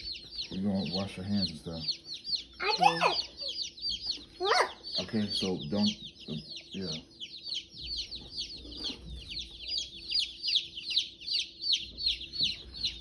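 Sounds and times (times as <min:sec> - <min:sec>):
chicks peeping: 0:00.0 - 0:13.0.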